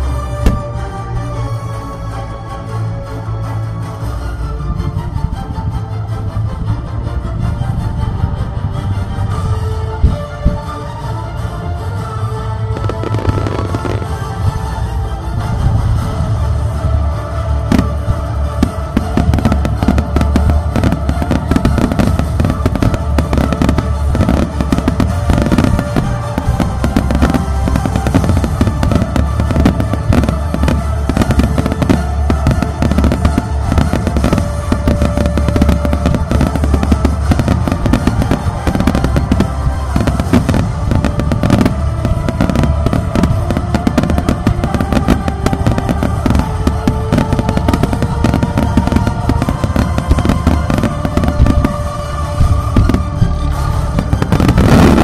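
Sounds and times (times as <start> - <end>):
fireworks bursting and crackling: 0.0 - 0.8, 12.7 - 14.8, 15.5 - 55.0
music playing: 0.0 - 55.0.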